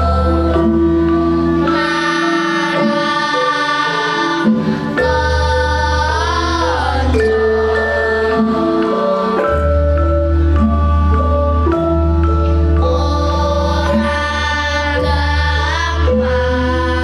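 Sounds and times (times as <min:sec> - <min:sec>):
instrumental accompaniment with deep bass: 0:00.0 - 0:17.0
girls' choir singing: 0:01.6 - 0:10.2, 0:12.8 - 0:17.0.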